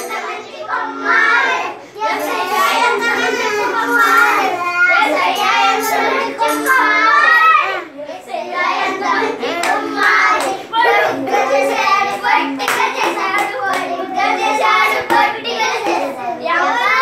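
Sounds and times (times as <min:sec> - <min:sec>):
children singing: 0:00.0 - 0:17.0
hands clapping: 0:06.4 - 0:06.9, 0:09.5 - 0:10.6, 0:12.1 - 0:14.0, 0:15.0 - 0:16.2.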